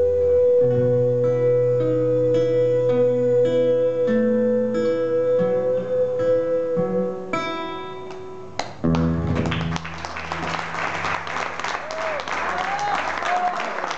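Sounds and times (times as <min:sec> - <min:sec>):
solo acoustic guitar: 0:00.0 - 0:11.3
audience applause: 0:08.9 - 0:13.9.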